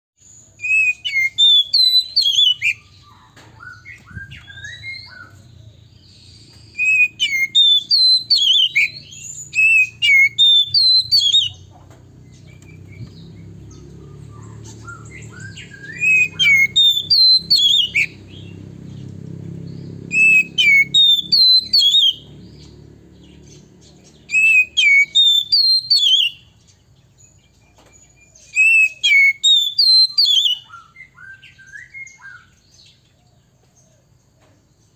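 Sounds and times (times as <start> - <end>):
bird singing whistled notes: 0.2 - 33.2.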